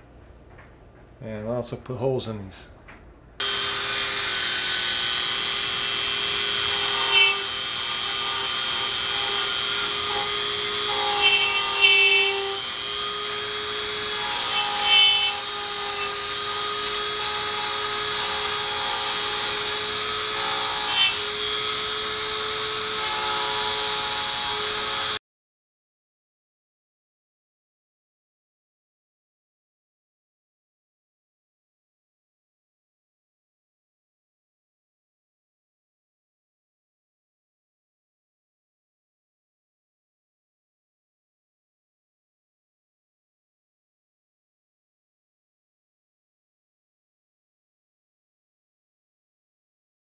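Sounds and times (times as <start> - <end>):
rotary tool grinding foam: 3.4 - 25.2.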